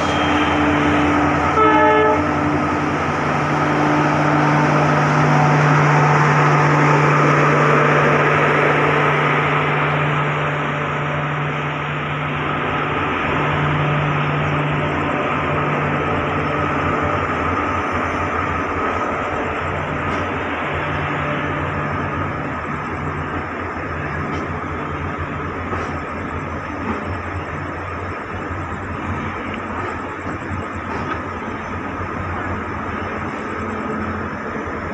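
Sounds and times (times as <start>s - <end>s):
short train horn toot: 0.0s - 2.6s
train coaches rolling past: 0.0s - 34.9s.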